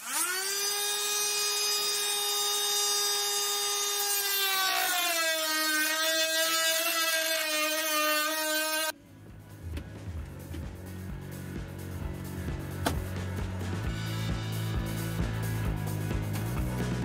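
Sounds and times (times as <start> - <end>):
rotary tool cutting plastic: 0.0 - 9.0.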